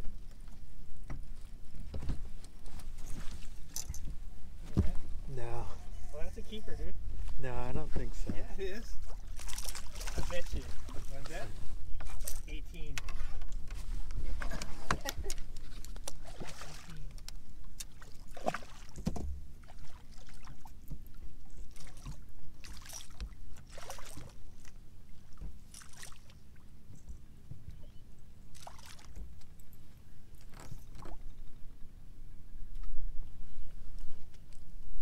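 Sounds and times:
light knocks and rustles: 1.0s - 5.1s.

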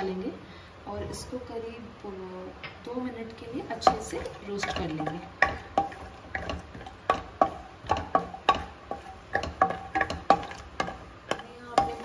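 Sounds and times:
peanuts roasting in oil: 2.9s - 12.0s
wooden spatula knocking pan: 3.5s - 12.0s.

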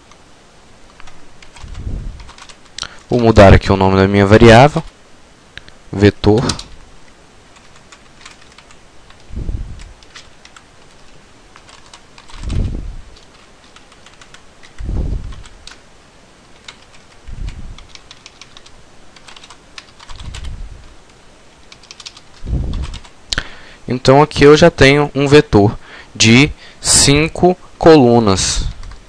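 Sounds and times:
keyboard typing: 0.9s - 2.9s, 7.5s - 15.8s, 16.5s - 20.6s, 21.6s - 23.1s
low muffled thuds: 12.4s - 13.1s, 14.8s - 15.5s.

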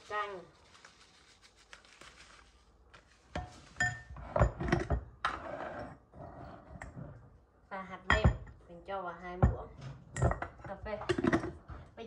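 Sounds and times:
kitchen utensils knocking and clinking: 3.4s - 5.1s, 8.0s - 8.6s, 9.4s - 11.7s.

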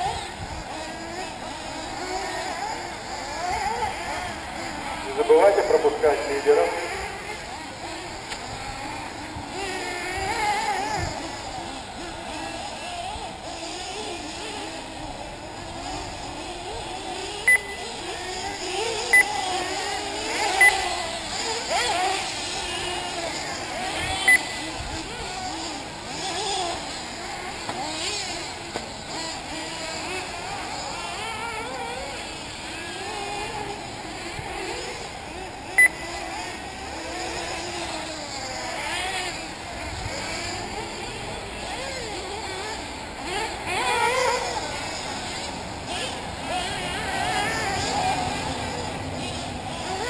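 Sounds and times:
rc car engines whining: 0.0s - 50.0s
short loud beep: 17.5s - 17.8s.

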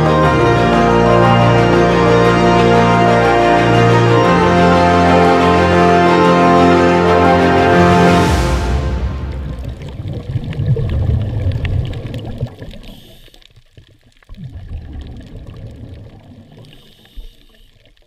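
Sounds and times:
underwater gurgling and bubbling: 9.7s - 18.0s.

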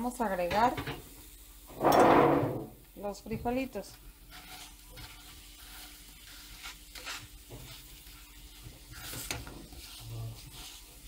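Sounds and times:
soft sizzle in hot pan: 0.0s - 11.0s
metal spoon scraping: 4.3s - 11.0s.

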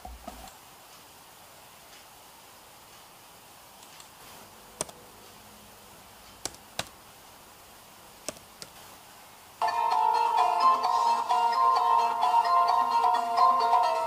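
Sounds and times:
music: 9.6s - 14.0s.

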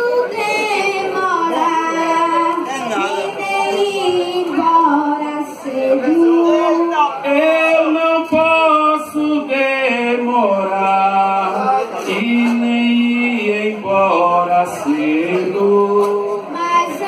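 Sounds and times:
boy singing into a microphone: 0.0s - 17.0s.

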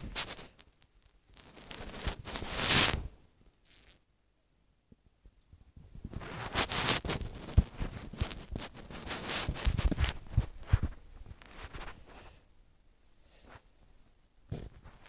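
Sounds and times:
microphone handling rustling: 0.0s - 0.6s, 1.4s - 3.1s, 5.9s - 12.2s.

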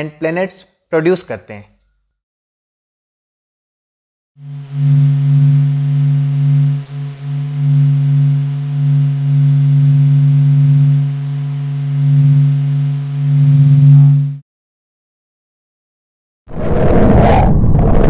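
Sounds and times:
low electronic hum: 4.4s - 14.4s.

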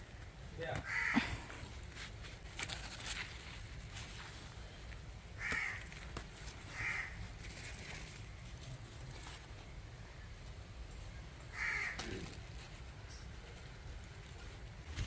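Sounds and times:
leaves and vines rustling: 0.0s - 15.0s
crow cawing: 0.8s - 1.4s, 5.4s - 5.9s, 6.7s - 7.3s, 11.5s - 12.4s.

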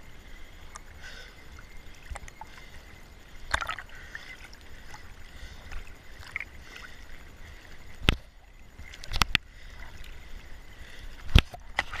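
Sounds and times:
sea waves lapping: 0.0s - 12.0s
water slapping against camera: 3.5s - 7.1s, 7.9s - 10.2s, 11.2s - 12.0s.

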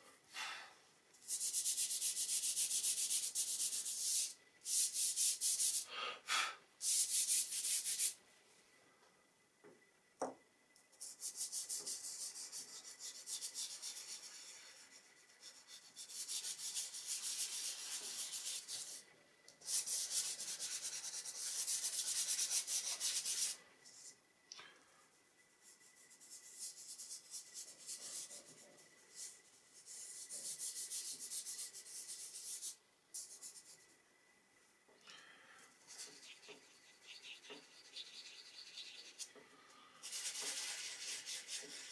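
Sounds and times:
fingers rubbing pastel on paper: 1.3s - 5.9s, 11.0s - 19.0s, 19.6s - 23.6s, 25.6s - 33.9s, 35.9s - 39.4s, 40.0s - 41.9s.

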